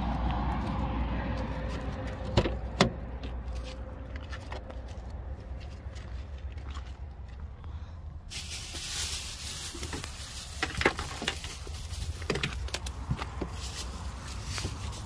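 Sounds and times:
plastic bags rustling: 8.3 - 15.0.

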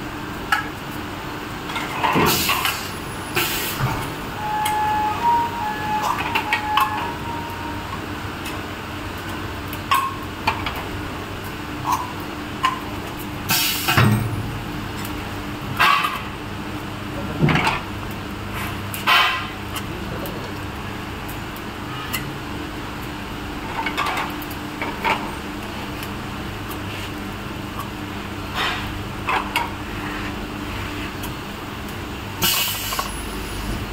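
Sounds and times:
short pneumatic hisses: 32.4 - 33.0.

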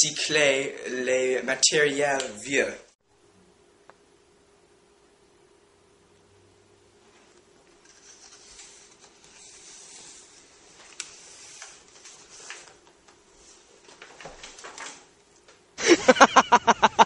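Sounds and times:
person speaking loudly: 0.0 - 2.9
faint steady hum: 0.0 - 17.0
books rustling and shuffling: 7.1 - 15.2.

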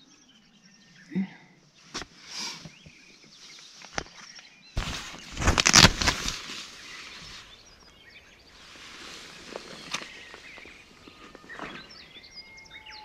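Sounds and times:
tent zip pulled open: 4.8 - 6.6
nylon fabric rustling: 4.8 - 7.4.

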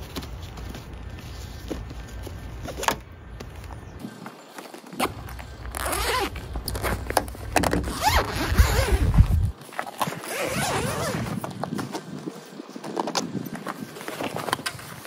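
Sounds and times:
fabric cover rustling: 4.5 - 12.1
zipper being pulled open: 5.0 - 7.0, 7.7 - 11.4.

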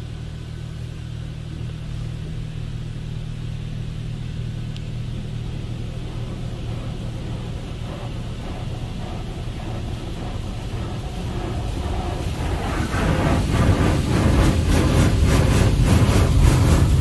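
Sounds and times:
car wash machine hum: 0.0 - 17.0
water spraying over car: 5.1 - 17.0.

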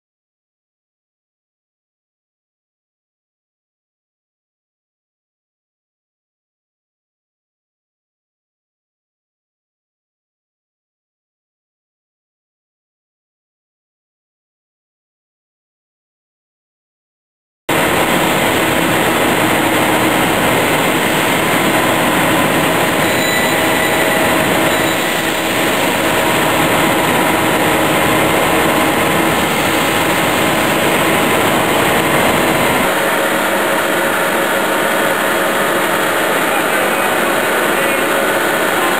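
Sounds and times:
processing machinery running: 17.7 - 38.9.

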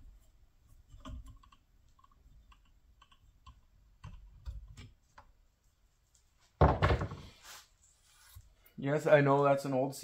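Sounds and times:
parts clicking and knocking: 0.1 - 5.4.

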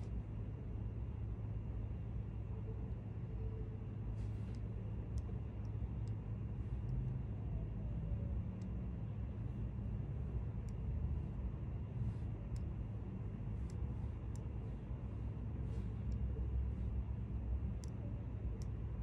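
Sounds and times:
low background rumble: 0.0 - 19.0
faint light ticks: 4.2 - 6.2, 10.6 - 10.9, 13.6 - 14.6, 17.6 - 18.8.

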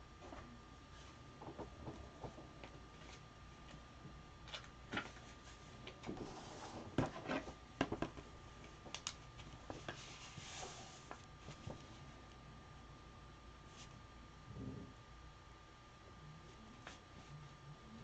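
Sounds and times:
faint high hum: 0.0 - 18.0.

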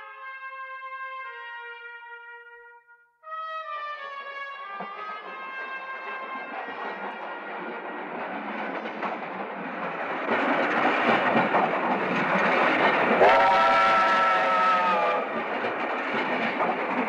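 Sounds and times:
train rushing past: 5.6 - 17.0
train whistle chord: 13.2 - 15.3.

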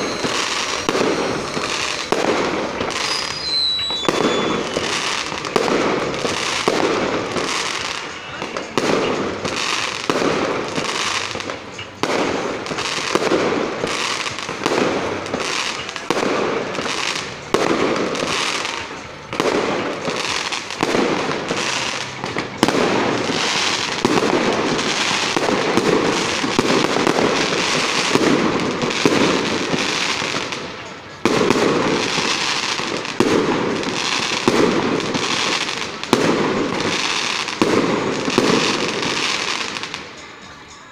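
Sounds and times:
fireworks bursting: 0.0 - 40.9
fireworks crackle: 0.0 - 40.9.

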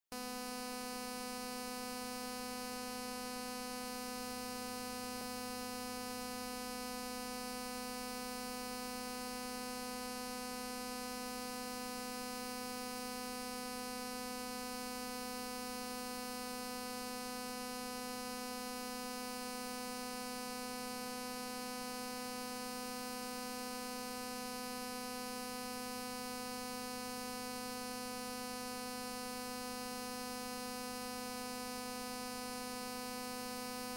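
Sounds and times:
buzzy electrical hum: 0.2 - 33.9.

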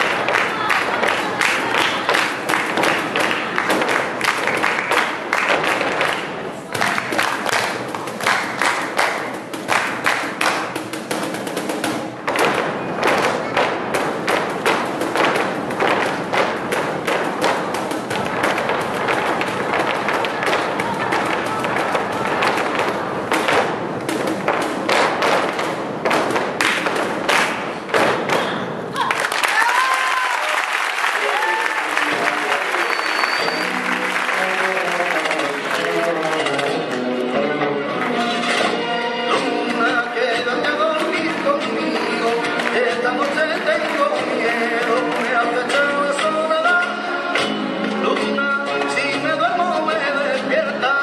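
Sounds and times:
shoe stamps on stage floor: 0.0 - 28.6
rhythmic hand clapping: 0.0 - 37.2, 40.4 - 47.6.

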